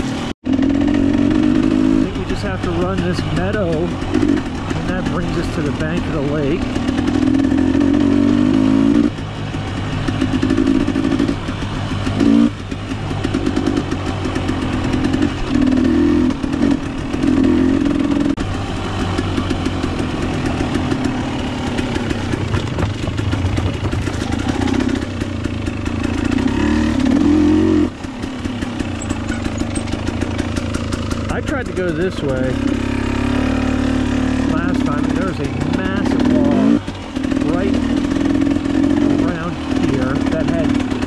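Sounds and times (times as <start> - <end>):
dirt bike engine revving: 0.0 - 41.0.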